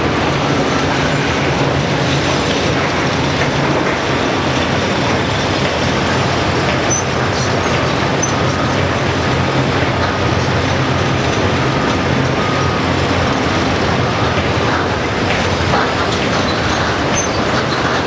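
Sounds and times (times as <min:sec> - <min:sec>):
excavator diesel engine droning: 0:00.0 - 0:18.0.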